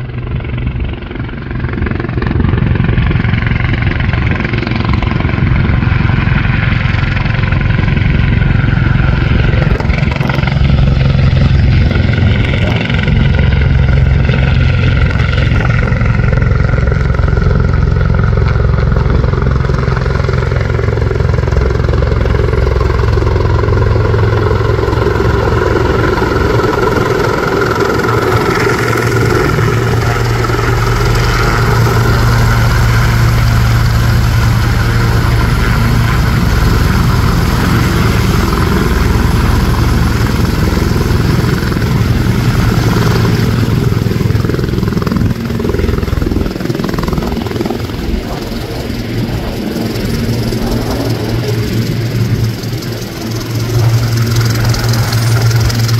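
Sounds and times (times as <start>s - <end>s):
helicopter rotor noise: 0.0s - 55.9s
turbine whine: 0.0s - 55.9s.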